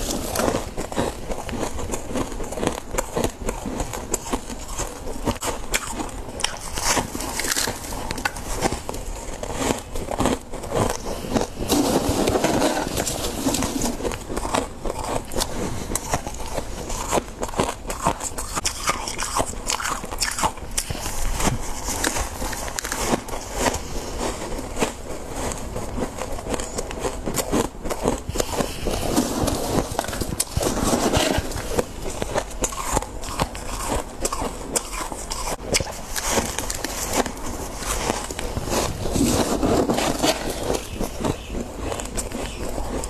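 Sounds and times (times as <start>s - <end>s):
frost crunching being chewed: 0.0s - 43.0s
frost scraping: 11.0s - 14.2s, 28.3s - 33.9s, 34.8s - 42.7s.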